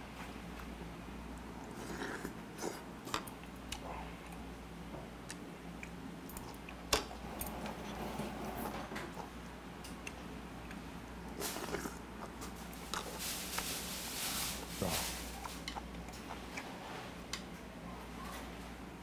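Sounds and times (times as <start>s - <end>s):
low steady hum: 0.0s - 19.0s
person chewing food: 1.4s - 8.0s, 9.0s - 13.7s, 14.6s - 17.5s.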